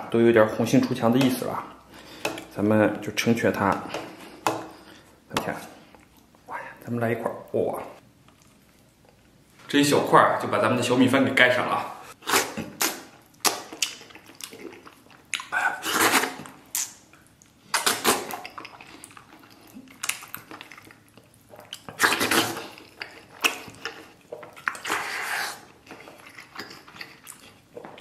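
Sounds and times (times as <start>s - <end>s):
wet slurping and chewing: 12.1s - 28.0s.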